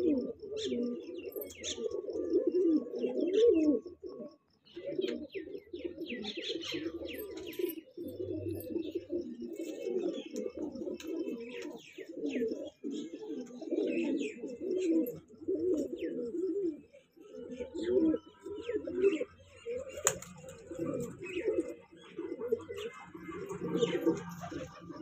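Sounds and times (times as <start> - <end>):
pigeons cooing: 0.0 - 25.0
small birds chirping: 0.0 - 25.0.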